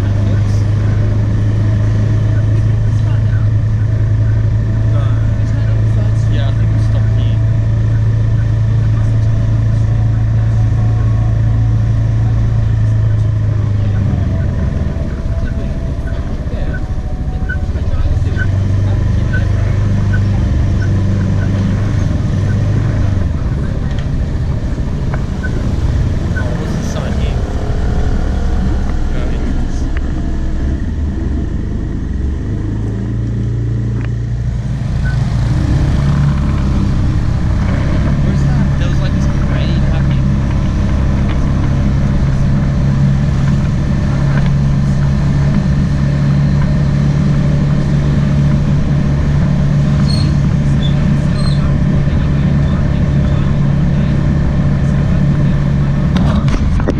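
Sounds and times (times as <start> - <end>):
motorbike engine running: 0.0 - 56.9
wind and road noise: 0.0 - 56.9.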